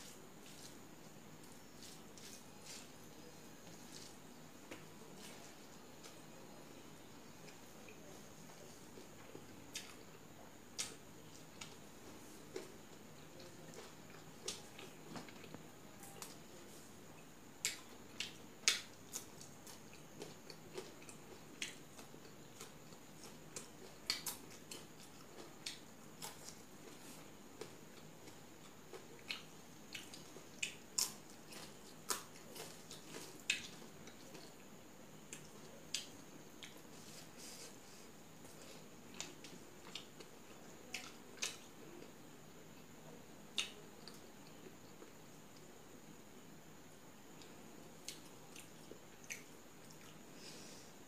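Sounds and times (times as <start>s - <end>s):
chewing crisp stems: 1.4s - 6.3s, 7.4s - 42.2s.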